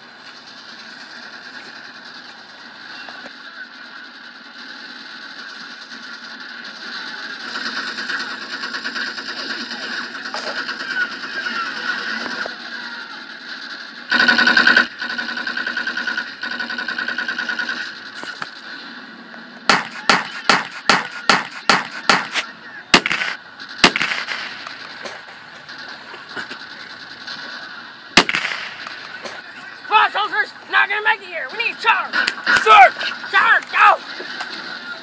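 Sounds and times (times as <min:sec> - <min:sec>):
machine-gun fire: 0:14.1 - 0:18.1, 0:19.7 - 0:25.2, 0:28.2 - 0:29.4
sharp single gunshots: 0:19.7 - 0:25.2, 0:28.2 - 0:29.4.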